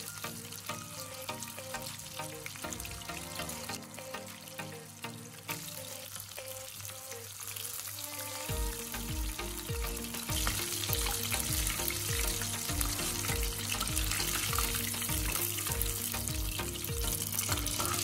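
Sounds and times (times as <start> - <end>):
prawns deep-frying in hot oil: 5.4 - 18.0
music with repeating bass beat: 8.5 - 18.0.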